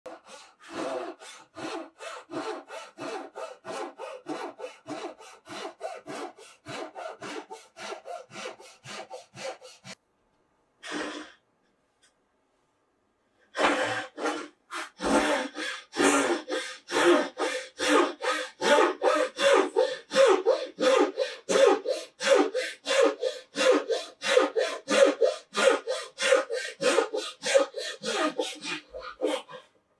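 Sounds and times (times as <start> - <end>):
pull saw cutting wood: 0.2 - 10.0, 13.6 - 29.4.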